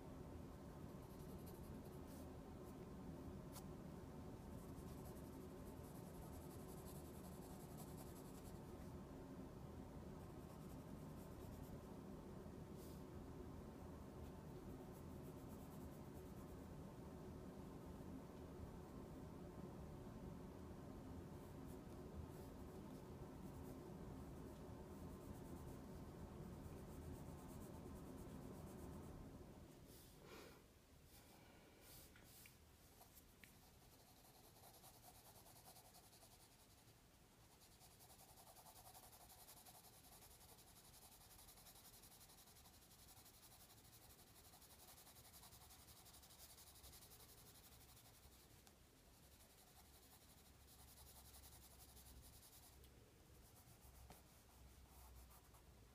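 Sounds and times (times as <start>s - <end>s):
pencil scratching on paper: 0.8s - 2.3s, 4.6s - 8.7s, 31.9s - 55.8s.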